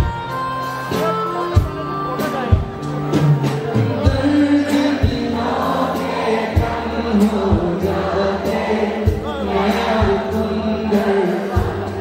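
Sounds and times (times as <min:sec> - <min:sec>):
keyboard notes: 0:00.0 - 0:12.0
man singing a slow ballad: 0:03.9 - 0:12.0.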